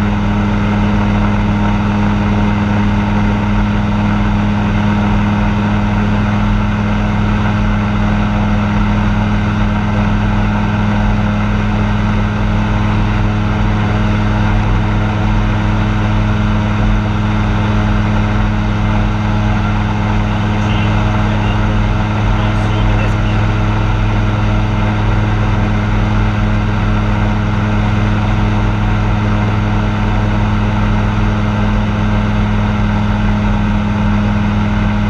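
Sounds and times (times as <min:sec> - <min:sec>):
light aircraft engine droning: 0:00.0 - 0:35.0.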